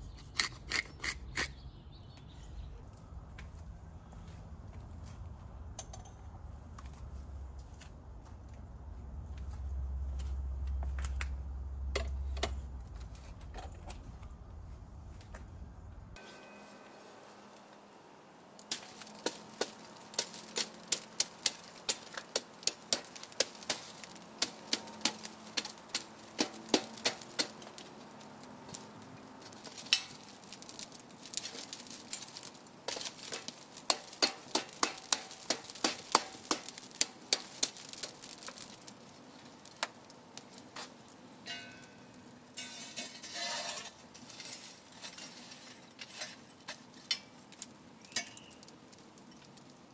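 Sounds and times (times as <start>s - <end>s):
wood fire crackling: 0.0s - 16.2s, 17.5s - 49.9s
faint fire hiss: 13.9s - 49.9s.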